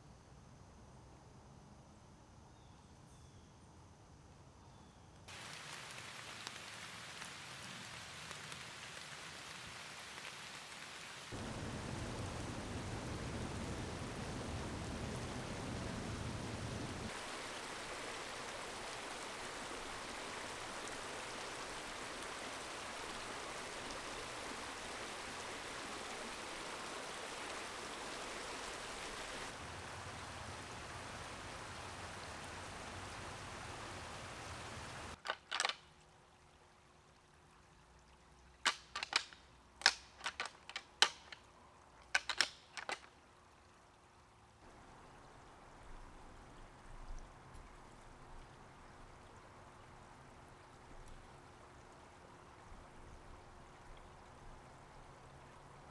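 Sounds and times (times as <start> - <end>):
creek rushing: 5.3 - 37.7.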